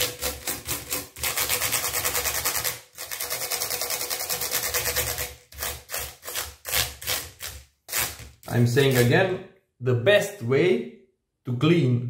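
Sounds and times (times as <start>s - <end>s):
brush scrubbing keyboard keys: 0.0s - 8.2s.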